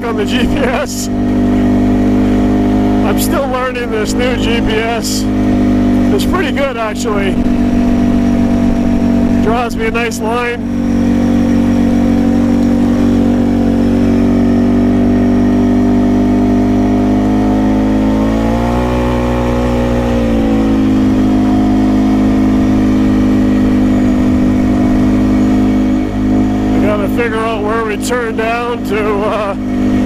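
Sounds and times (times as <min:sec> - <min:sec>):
atv engine running and revving: 0:00.0 - 0:30.0.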